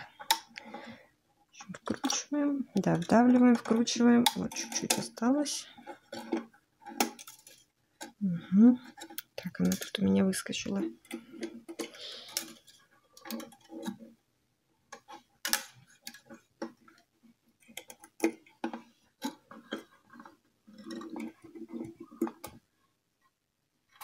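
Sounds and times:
violin strings clicking and rattling: 1.6 - 14.1, 17.6 - 22.6.

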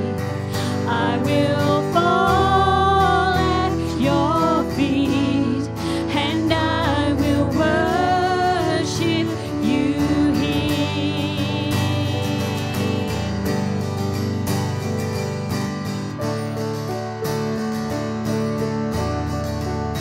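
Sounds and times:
woman singing with vibrato: 0.0 - 13.7
acoustic guitar: 0.0 - 20.0
keyboard: 0.0 - 20.0.

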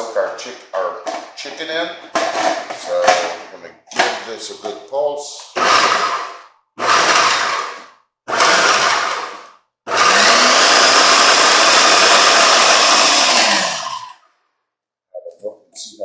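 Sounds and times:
food processor motor chopping: 5.6 - 14.2.

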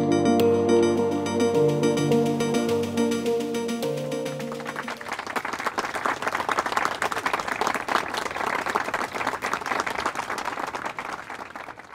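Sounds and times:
music track: 0.0 - 5.2
crowd applause: 4.3 - 11.9.

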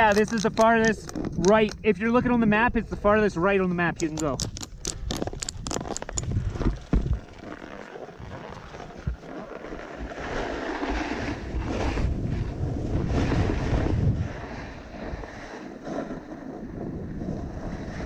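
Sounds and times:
wind buffeting the microphone: 0.0 - 7.3, 9.9 - 18.0
snowboard scraping over snow: 6.8 - 18.0.

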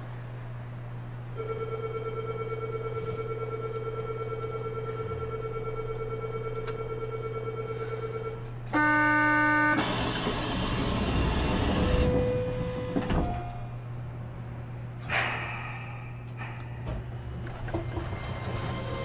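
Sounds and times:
electrical hum: 0.0 - 19.0
door buzzer: 1.4 - 13.7
doors sliding shut: 9.7 - 13.7, 16.8 - 19.0.

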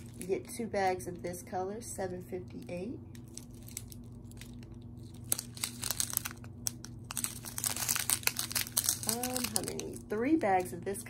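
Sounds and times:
plastic bags crinkling: 0.0 - 0.6, 3.1 - 10.7
steady low hum: 0.0 - 11.0.

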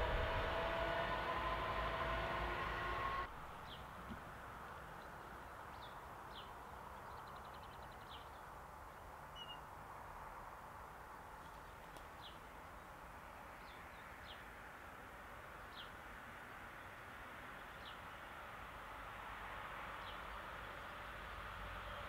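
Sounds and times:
small birds chirping: 5.0 - 9.7.

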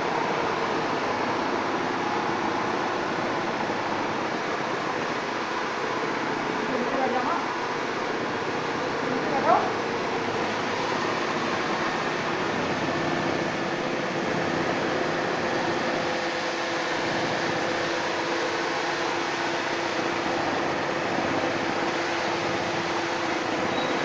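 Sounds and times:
steady mechanical hum: 0.0 - 24.0
high-pressure water spraying: 15.3 - 24.0.

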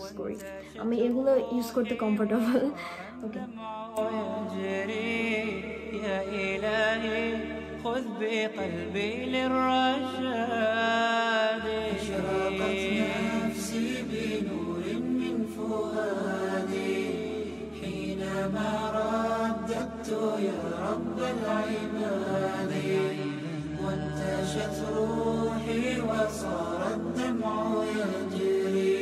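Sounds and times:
voices chanting: 11.9 - 29.0.

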